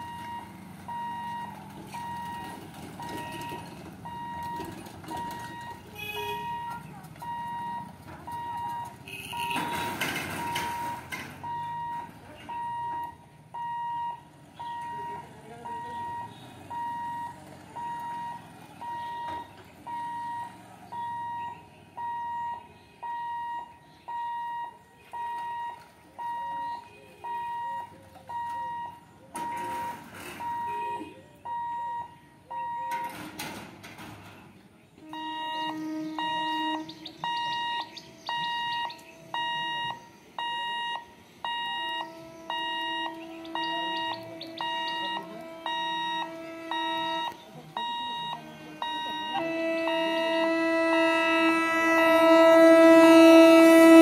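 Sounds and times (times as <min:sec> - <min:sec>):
level crossing alarm beeping: 0:00.0 - 0:33.5, 0:35.0 - 0:54.0
fast multi-pitch warning beep: 0:09.4 - 0:30.9, 0:35.1 - 0:50.5.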